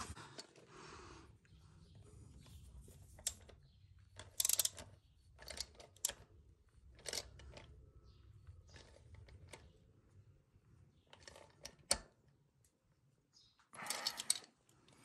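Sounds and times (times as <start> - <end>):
oil filter wrench clicking and rattling: 4.2 - 6.2, 7.0 - 7.7, 13.8 - 14.5.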